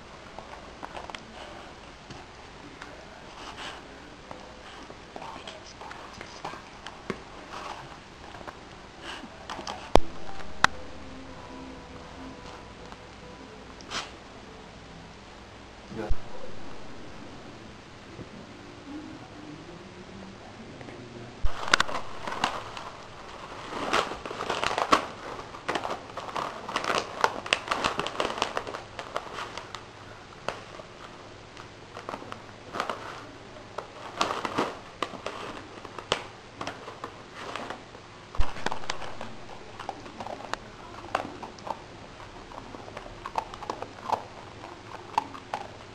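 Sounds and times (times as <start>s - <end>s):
dog chewing a crinkly toy: 21.5s - 45.9s.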